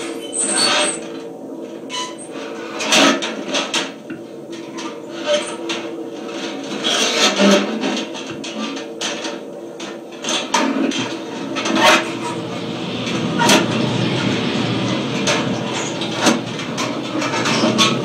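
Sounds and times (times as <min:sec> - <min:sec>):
crackling electronic noise music: 0:10.1 - 0:18.0
hissing wash: 0:11.2 - 0:18.0.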